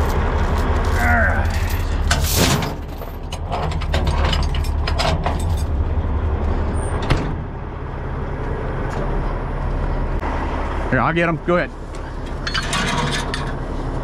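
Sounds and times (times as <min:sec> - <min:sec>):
heavy chains clanking: 0:00.0 - 0:06.9, 0:12.3 - 0:13.6
diesel engine rumbling: 0:00.0 - 0:14.0.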